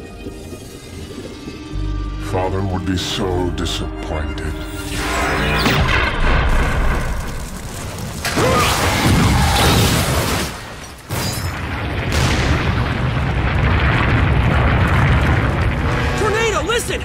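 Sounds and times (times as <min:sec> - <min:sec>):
volcano rumbling with booms: 0:11.6 - 0:16.8.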